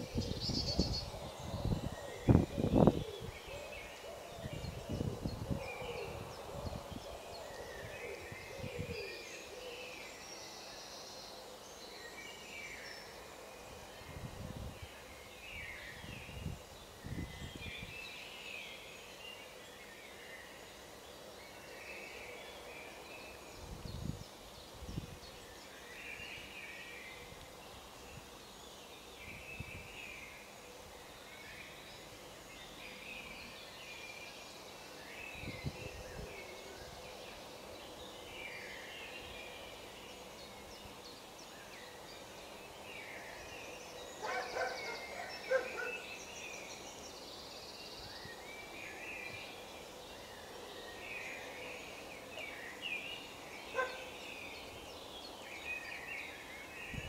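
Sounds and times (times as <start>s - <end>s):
birds chirping: 21.6s - 57.0s.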